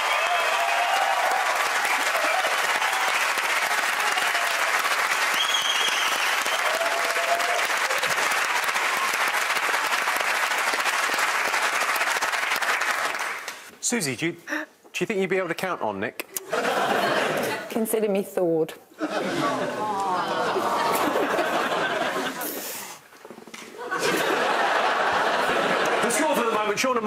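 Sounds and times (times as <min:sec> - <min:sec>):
audience applauding: 0:00.0 - 0:13.7.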